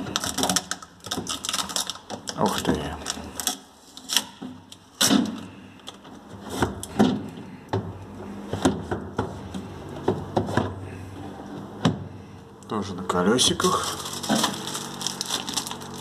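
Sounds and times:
refrigerator knocks and thuds: 6.4 - 10.8, 11.8 - 12.1.

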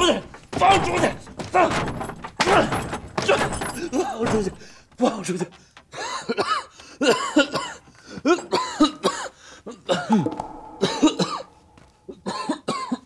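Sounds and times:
man coughing: 6.0 - 11.5, 12.3 - 13.0.

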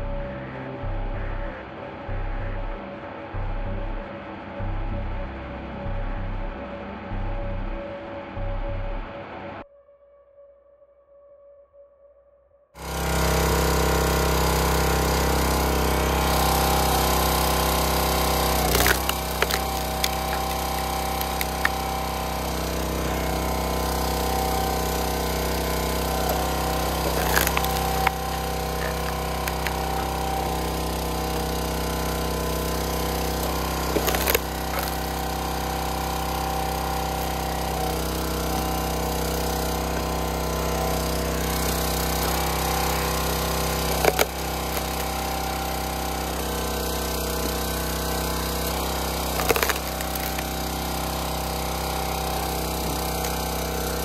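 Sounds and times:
gas engine running: 0.0 - 9.2, 12.8 - 54.0
logs cracking as they split: 16.0 - 45.8, 47.5 - 54.0.

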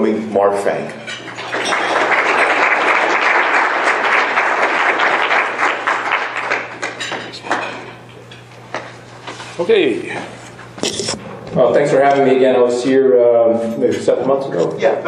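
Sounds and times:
audience applauding: 1.3 - 7.0.

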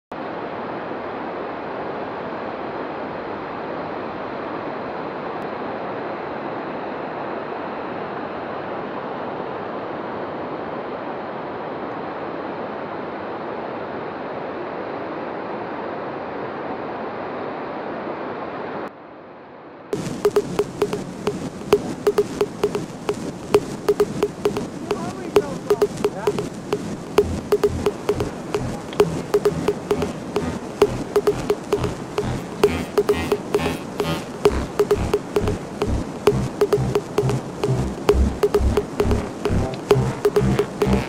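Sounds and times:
sharp clicks: 20.0 - 41.0.

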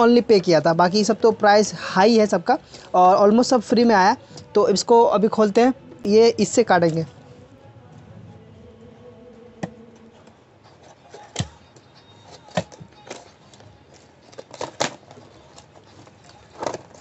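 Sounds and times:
plastic packaging crackling: 10.8 - 17.0.

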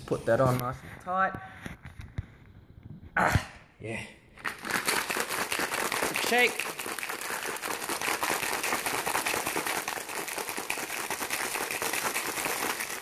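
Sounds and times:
ice rattling in shaken bottle: 4.4 - 13.0.

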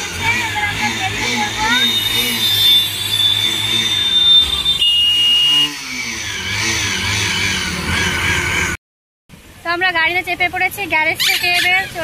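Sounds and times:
motorcycle engine revving: 0.0 - 8.8.

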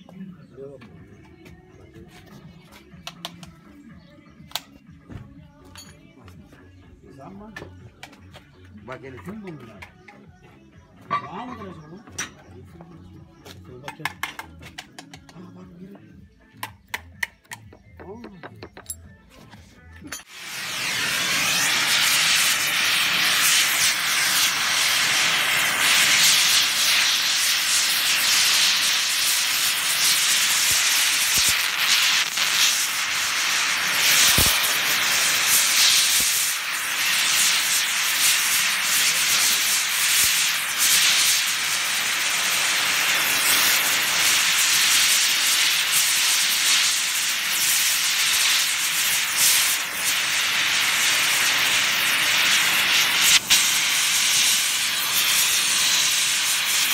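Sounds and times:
torch flame hissing: 20.2 - 56.9.

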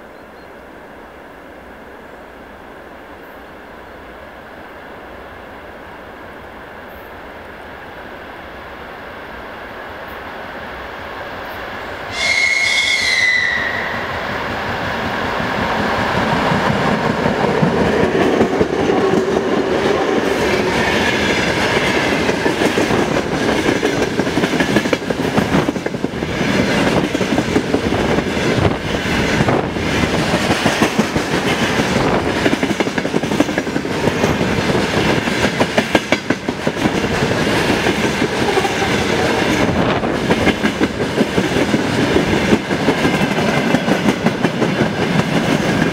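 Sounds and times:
freight train rumbling past: 0.0 - 45.9
locomotive horn blast: 12.1 - 14.2.

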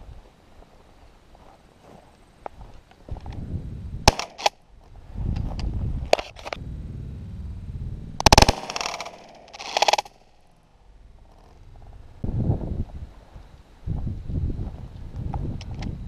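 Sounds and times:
shotgun shots: 4.1 - 4.6, 8.2 - 10.2.

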